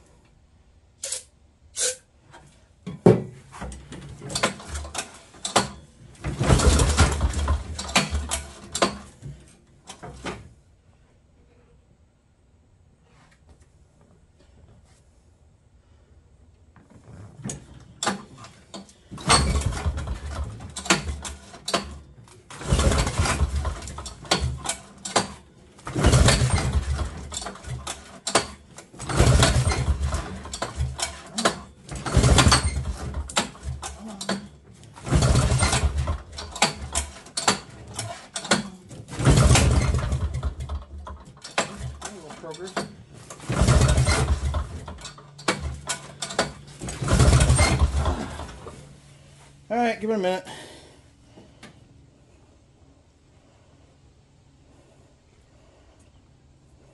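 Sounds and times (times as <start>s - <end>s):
snowmobile engine pull-started: 3.9s - 9.2s, 17.1s - 48.9s.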